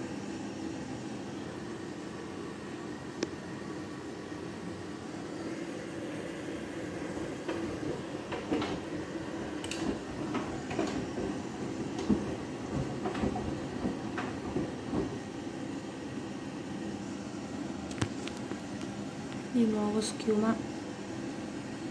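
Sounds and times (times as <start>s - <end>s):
washing machine drum tumbling: 7.0s - 15.8s.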